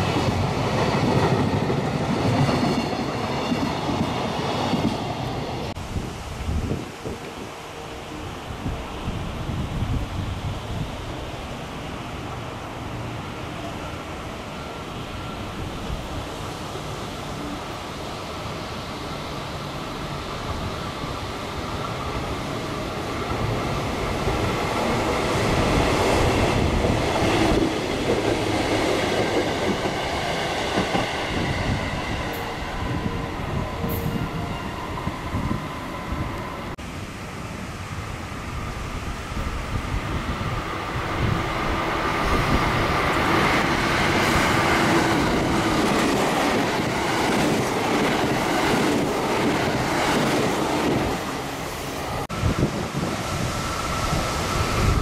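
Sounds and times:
electric train passing: 0.0s - 55.0s.

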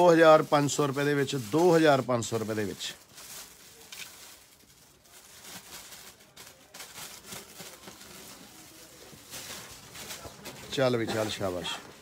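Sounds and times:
soft rustles: 0.4s - 12.0s.

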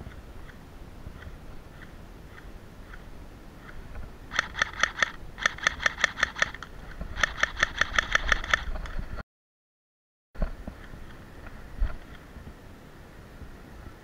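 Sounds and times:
airsoft pistol rapid shots: 4.3s - 8.7s.

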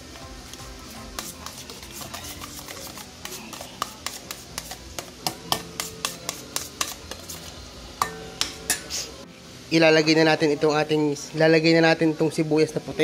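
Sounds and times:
spoon scraping metal bowl: 0.9s - 7.5s.

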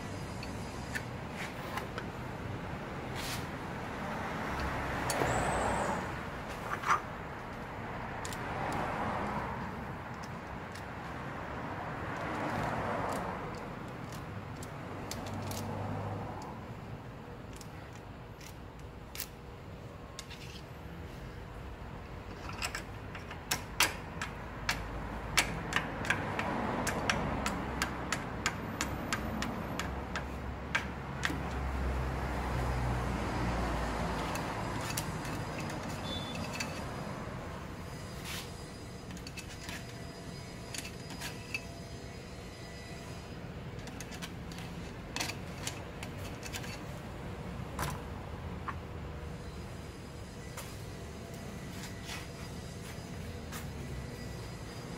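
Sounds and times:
screwdriver scraping metal: 34.0s - 37.2s, 37.8s - 47.0s.

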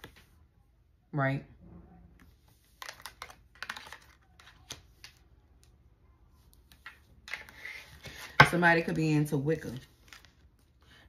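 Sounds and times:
cards being shuffled: 2.5s - 5.2s.

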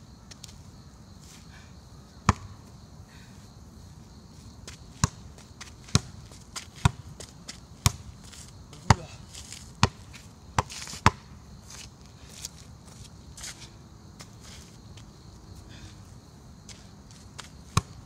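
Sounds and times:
soccer ball kicks: 2.3s - 2.6s, 5.0s - 11.3s, 17.4s - 18.0s.

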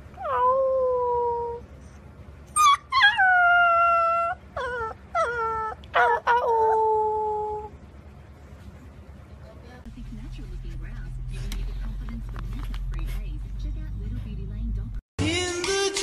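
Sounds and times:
puppy howling: 0.1s - 1.6s, 2.5s - 7.8s.

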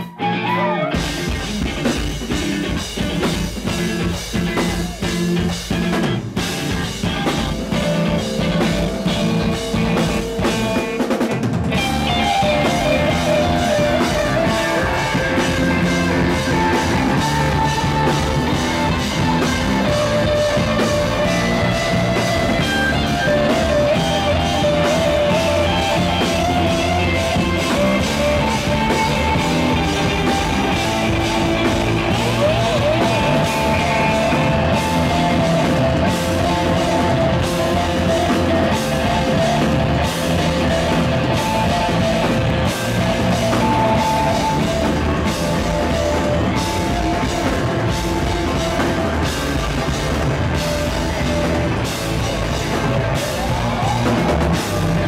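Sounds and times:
rock band playing: 0.0s - 55.0s
wavering guitar melody: 0.0s - 55.0s.

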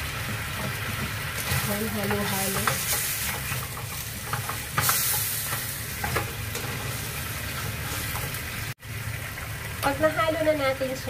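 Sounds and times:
meat sizzling in frying pan: 0.0s - 11.0s
spatula scraping pan: 0.6s - 8.5s.

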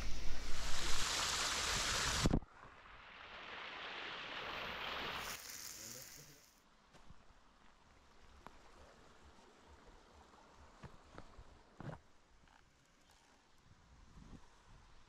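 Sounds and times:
loud water rushing: 0.0s - 2.4s.

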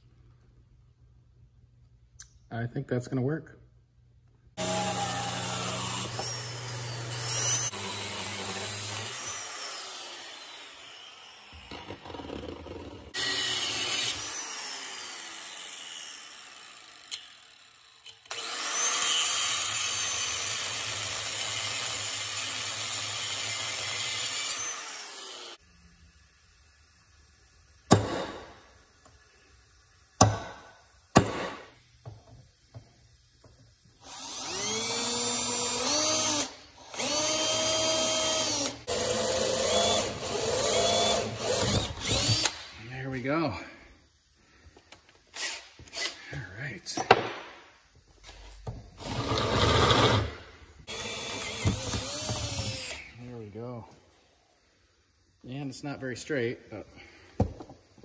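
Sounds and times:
cordless drill whining: 4.6s - 12.4s, 13.1s - 22.7s, 23.4s - 25.6s, 34.0s - 42.6s, 49.0s - 53.2s
power tool running: 4.6s - 25.6s, 34.0s - 42.7s, 49.0s - 53.1s.

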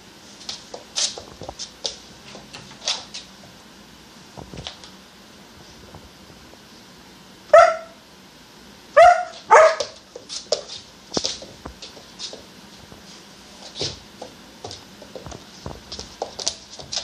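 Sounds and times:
puppy barking: 7.5s - 8.0s, 8.9s - 10.0s.

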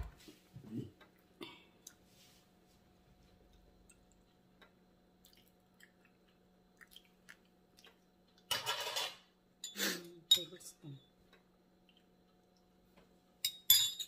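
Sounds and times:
faint steady hum: 0.0s - 14.0s
dishes clattering: 8.5s - 10.4s, 13.4s - 14.0s.

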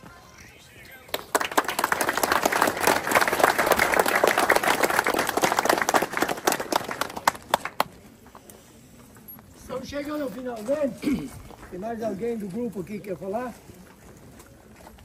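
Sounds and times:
crowd applauding: 1.1s - 8.0s.

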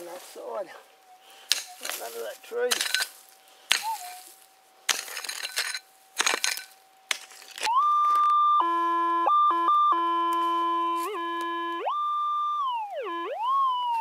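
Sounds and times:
metal detector signal tone: 1.0s - 3.1s, 3.7s - 4.3s, 7.7s - 14.0s
metal detector hum: 1.0s - 6.8s, 7.5s - 14.0s
pick chopping into stony soil: 2.7s - 4.3s, 4.9s - 7.7s.

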